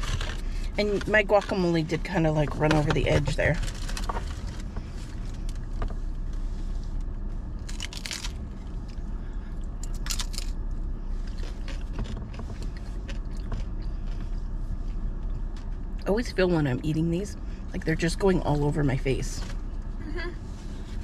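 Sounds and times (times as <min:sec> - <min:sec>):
steady low hum: 0:00.0 - 0:21.0
crunchy shells being chewed: 0:07.6 - 0:09.0, 0:09.6 - 0:14.3.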